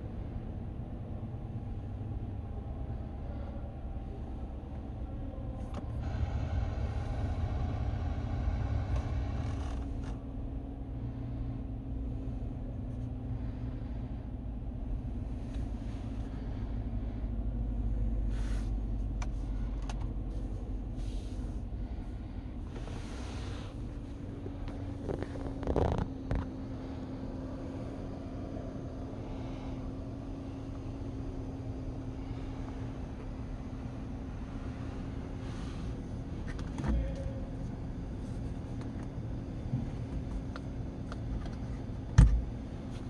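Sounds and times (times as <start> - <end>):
pickup truck engine idling: 0.0 - 25.5.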